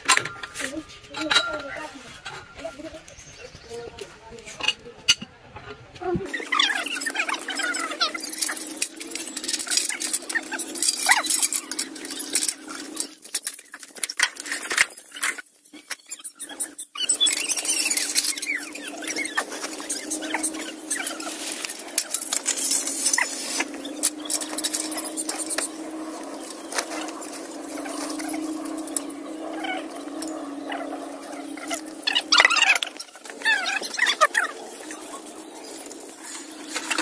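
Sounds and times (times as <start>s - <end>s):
drilling rig squeaking and clinking: 0.0s - 3.8s, 6.3s - 37.0s
steady low hum: 17.0s - 37.0s.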